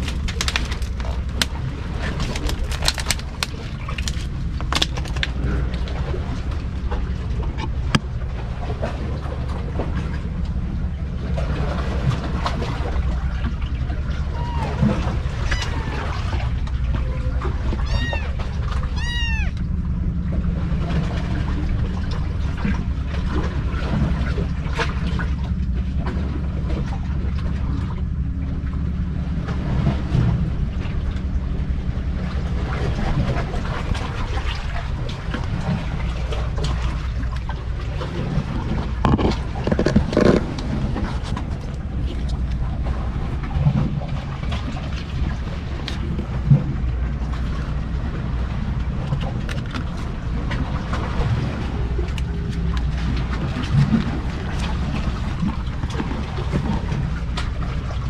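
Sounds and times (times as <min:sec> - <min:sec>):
rustles and knocks: 0:00.0 - 0:05.9, 0:38.6 - 0:42.6
low rumble: 0:00.0 - 0:58.0
kitten mewing: 0:14.3 - 0:16.3, 0:17.8 - 0:19.6.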